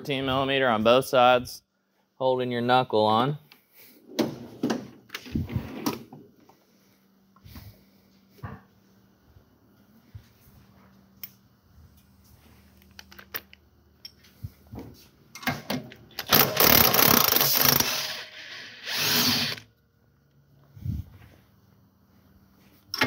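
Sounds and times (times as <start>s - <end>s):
impact driver running out bolts: 16.2s - 19.6s.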